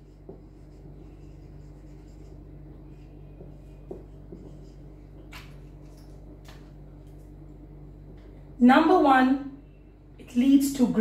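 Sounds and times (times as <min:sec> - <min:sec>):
marker strokes on whiteboard: 0:00.0 - 0:05.5
steady low hum: 0:00.0 - 0:11.0.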